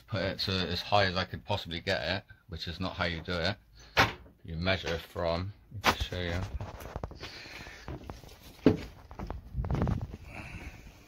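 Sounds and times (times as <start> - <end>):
clothes rustling: 5.9 - 10.6.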